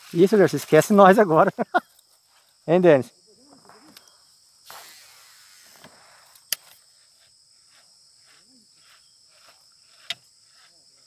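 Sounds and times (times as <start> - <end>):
insects buzzing: 0.0 - 11.0
fishing line hissing out: 3.8 - 9.6.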